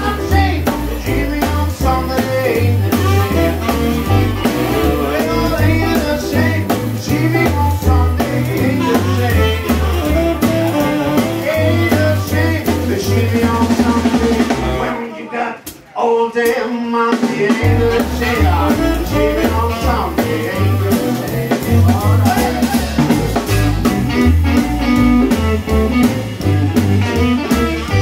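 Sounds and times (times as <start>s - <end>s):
electric guitars: 0.0s - 14.9s, 17.6s - 28.0s
drum kit: 0.0s - 15.0s, 15.6s - 28.0s
walking bass line: 0.0s - 15.0s, 17.6s - 28.0s
piano: 0.0s - 15.1s, 17.2s - 28.0s
saxophone melody: 2.5s - 6.7s, 7.4s - 12.6s, 17.7s - 28.0s.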